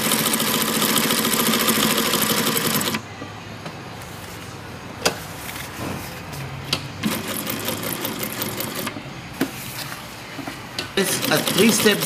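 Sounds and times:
industrial sewing machine sewing: 0.0 - 3.0, 7.0 - 8.9, 11.0 - 12.0.

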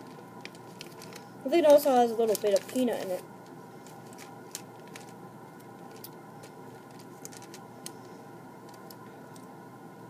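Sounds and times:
crinkly plastic bag clicks: 0.0 - 3.2, 3.9 - 8.0.

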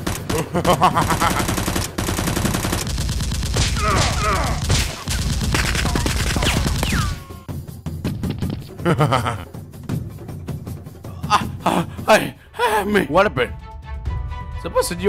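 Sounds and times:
rapid gunfire sound effects: 0.0 - 8.6
man crying out: 3.8 - 4.7.

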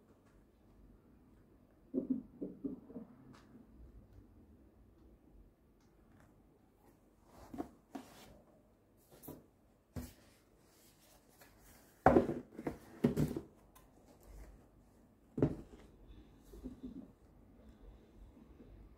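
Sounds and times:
cardboard box knocks and rustles: 12.0 - 13.5, 15.4 - 15.8.

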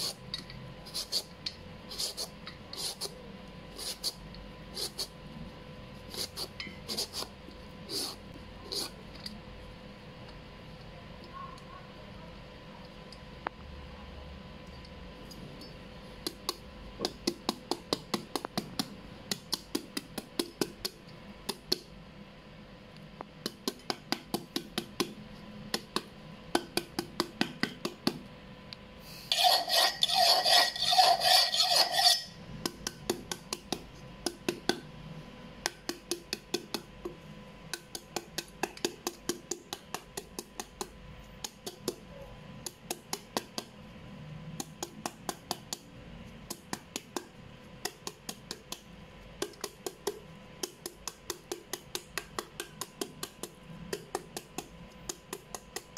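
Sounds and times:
rapid scraping with metallic ring: 29.2 - 32.5
knife chopping papaya: 32.6 - 34.8, 35.7 - 43.7, 49.4 - 55.9.

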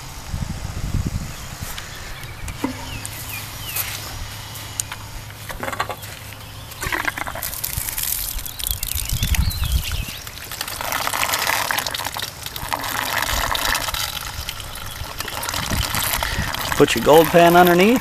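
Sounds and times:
water from hose gushing: 6.8 - 18.0.

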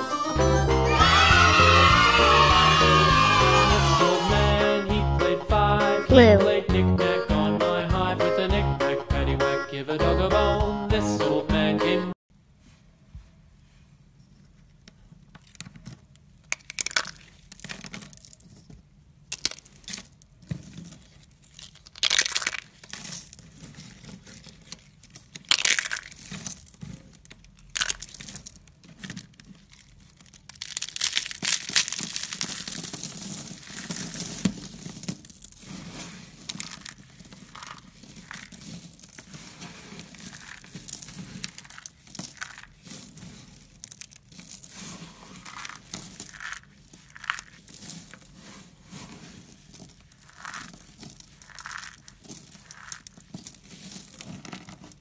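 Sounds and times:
hands crushing dry flakes: 15.4 - 55.0
flakes rustling: 16.7 - 55.0.

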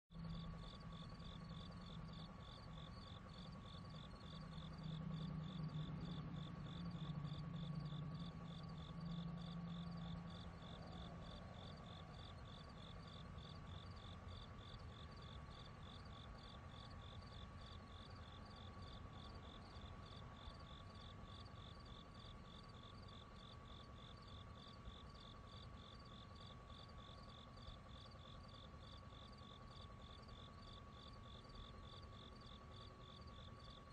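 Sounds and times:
low hum: 0.2 - 21.3
insects chirping: 0.2 - 33.9
steady whirring tone: 0.2 - 33.9.

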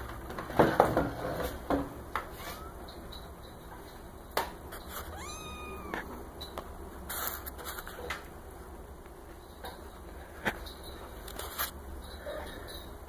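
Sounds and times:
kitten mewing: 2.3 - 2.9, 5.0 - 6.2
soft clicks and rustles: 9.0 - 12.9.

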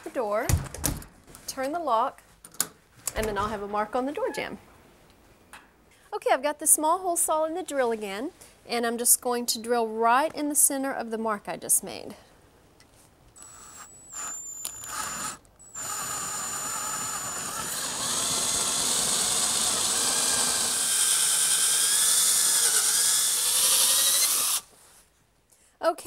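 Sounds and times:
power drill boring into wood: 13.4 - 24.7.

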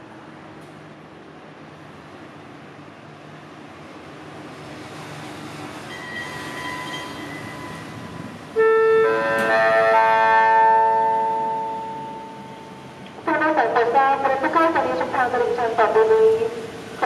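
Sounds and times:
public address chime: 9.0 - 16.5.

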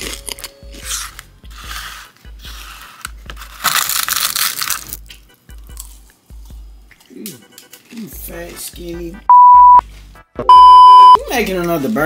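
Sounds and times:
bread crunching and crackling: 0.0 - 1.7, 2.5 - 6.1.

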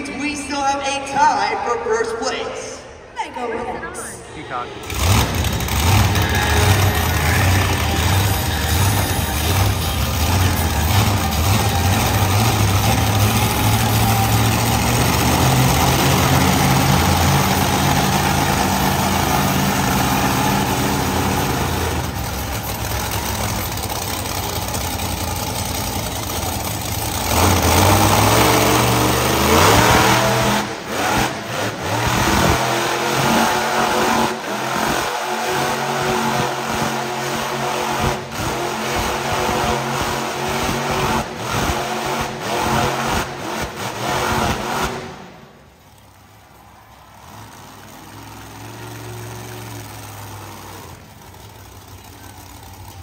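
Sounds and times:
truck engine revving: 4.5 - 53.0.

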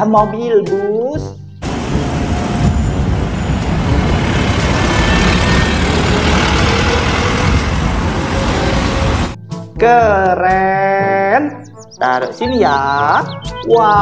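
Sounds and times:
bus engine rumbling: 1.6 - 9.4
road noise: 1.6 - 9.4.

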